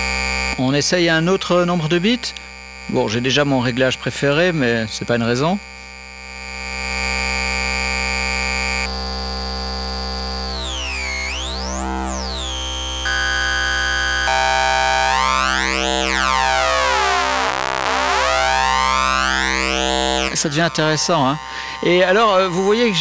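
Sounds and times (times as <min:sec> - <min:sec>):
buzzy synthesizer tone: 0:07.1 - 0:23.0.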